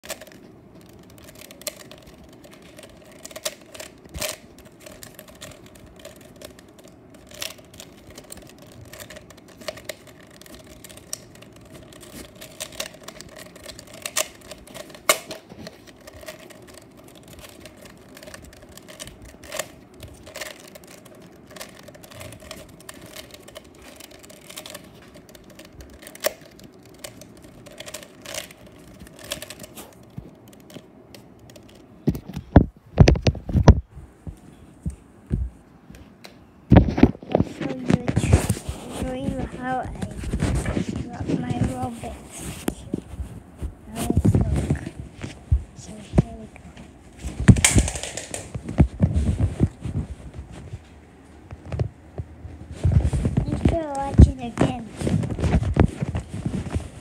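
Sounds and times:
puzzle cube clicking as turned: 0.0s - 32.2s, 47.5s - 48.5s.

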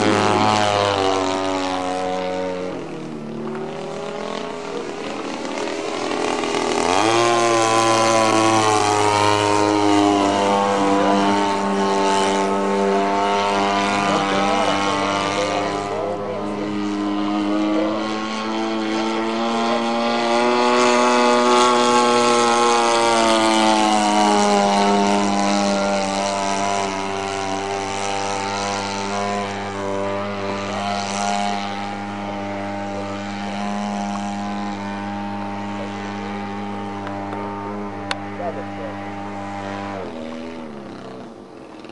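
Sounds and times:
model plane two-stroke engine: 0.0s - 41.9s.

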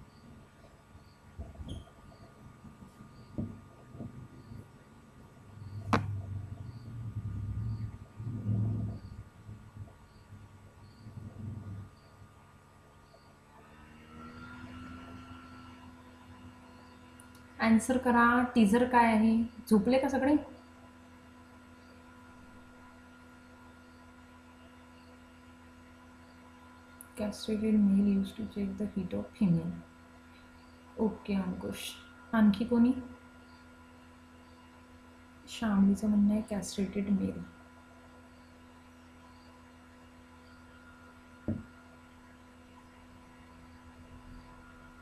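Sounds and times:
faint steady hum: 0.0s - 45.0s
short low thump: 3.3s - 4.3s, 41.4s - 41.7s.

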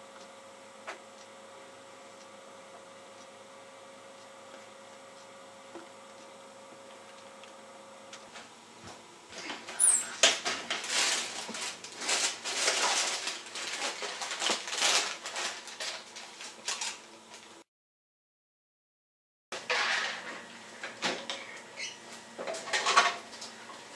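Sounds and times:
packets rustling: 9.5s - 17.5s.

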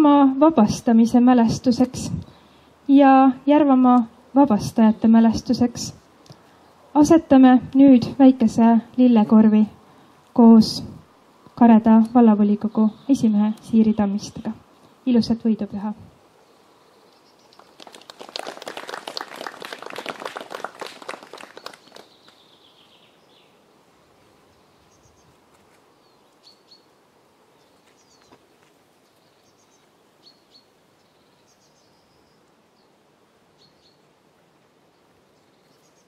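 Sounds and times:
crowd applauding: 17.6s - 22.2s
faint bird chirps: 24.5s - 25.4s, 29.0s - 33.0s, 33.6s - 34.1s.

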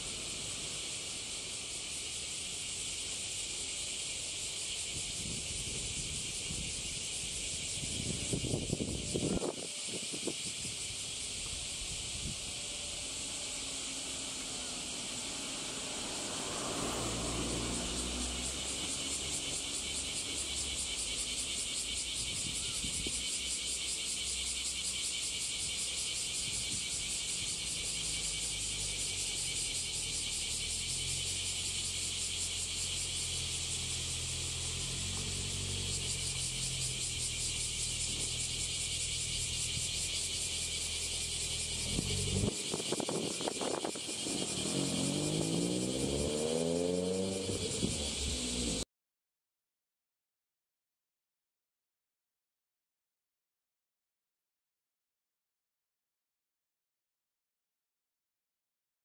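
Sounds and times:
passing vehicle engines: 0.0s - 48.8s
vehicle accelerating: 12.1s - 23.2s, 26.1s - 48.8s.

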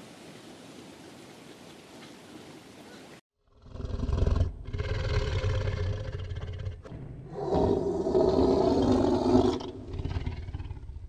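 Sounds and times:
large animal growling: 3.5s - 11.0s
large animal roaring: 3.5s - 11.0s.

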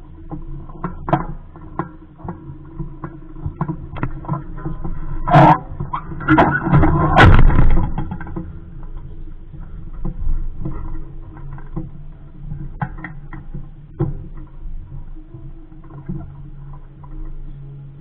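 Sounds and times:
knocks and rattles on boat hull: 0.3s - 9.0s, 9.6s - 15.0s.

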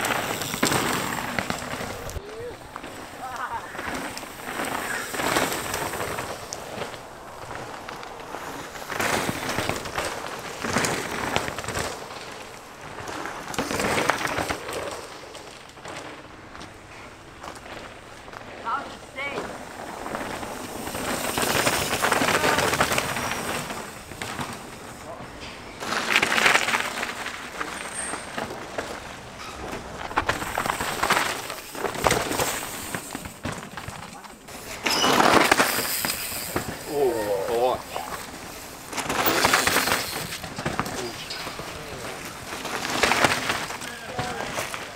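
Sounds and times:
bike tyres skidding on dirt: 0.0s - 44.9s
clicks and clatter: 38.0s - 44.9s.

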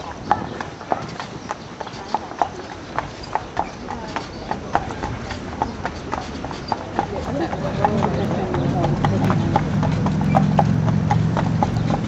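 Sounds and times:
hooves clip-clopping on pavement: 0.0s - 12.0s.

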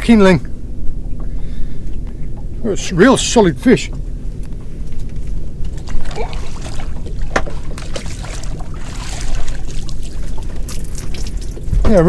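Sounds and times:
water washing against hull: 5.4s - 12.0s.

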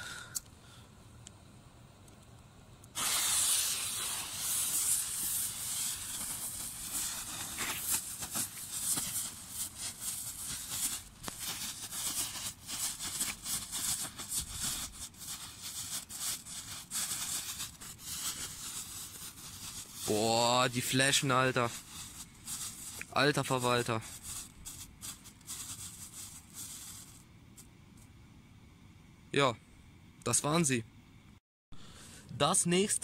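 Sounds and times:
sharp crackles: 2.0s - 27.7s
firework fountains hissing: 2.9s - 27.2s.

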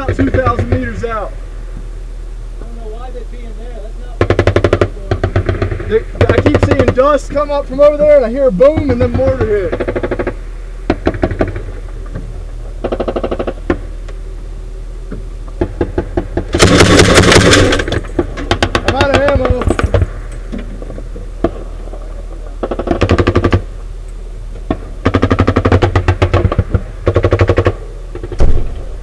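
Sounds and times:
automatic gunfire bursts: 4.2s - 7.2s, 16.5s - 20.0s, 25.0s - 28.7s.

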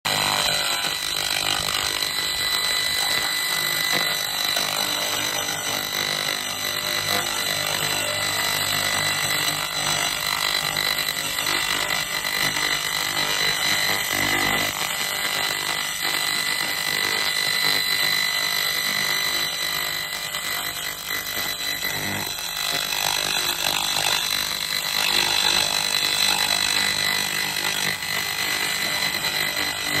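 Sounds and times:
laser cleaner whine: 0.1s - 30.0s.

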